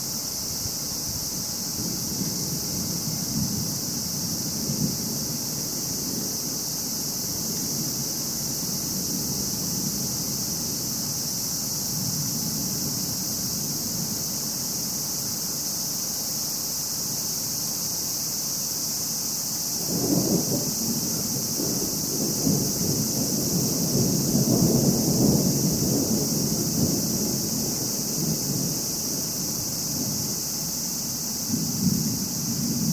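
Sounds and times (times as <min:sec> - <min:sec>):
high-pitched hiss: 0:00.0 - 0:32.9
thunder rumbling: 0:19.8 - 0:30.4, 0:31.4 - 0:32.9.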